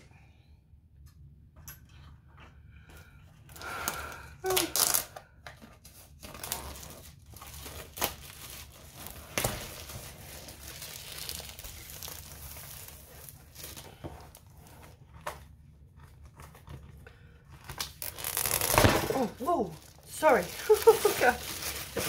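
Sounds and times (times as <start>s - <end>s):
plastic wrapping crinkling: 3.5s - 22.0s.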